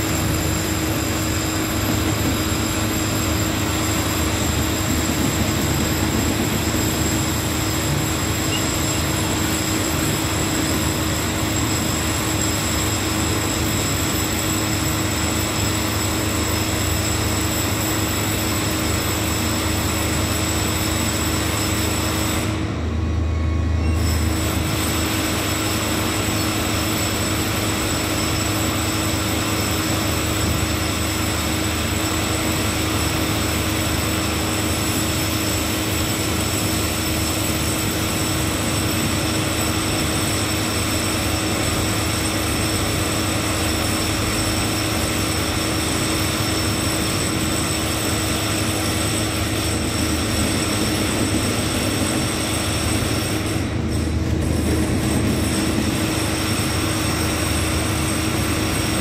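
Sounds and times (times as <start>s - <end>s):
freight train rolling slowly: 0.0s - 59.0s
loud steady drone: 0.0s - 59.0s.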